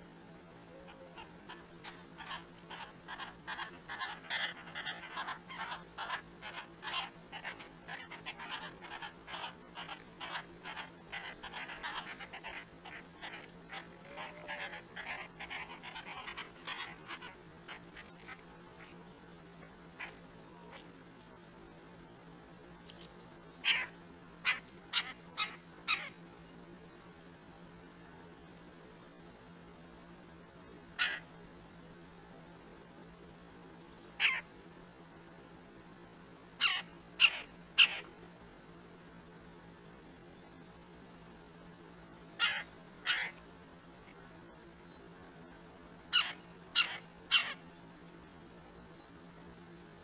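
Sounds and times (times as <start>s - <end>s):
faint steady hum: 0.0s - 50.0s
woodpecker pecking corn: 1.2s - 19.1s.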